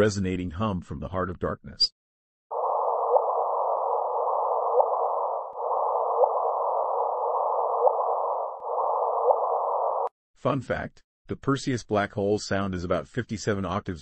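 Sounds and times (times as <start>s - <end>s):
faint rising chirps: 2.6s - 10.1s.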